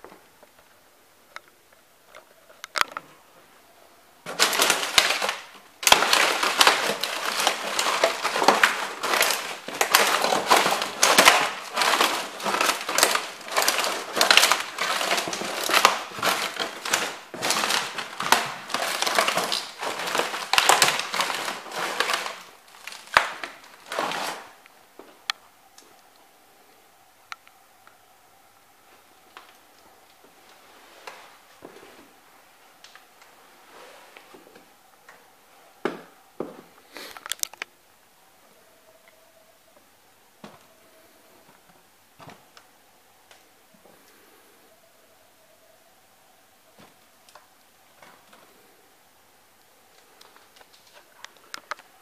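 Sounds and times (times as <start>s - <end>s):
broken pieces crunching: 4.2s - 24.7s.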